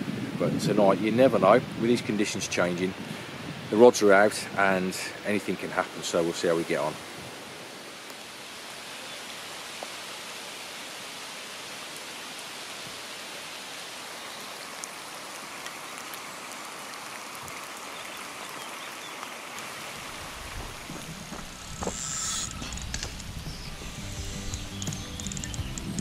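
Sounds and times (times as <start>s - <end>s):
rain falling on a lake: 0.0s - 26.0s.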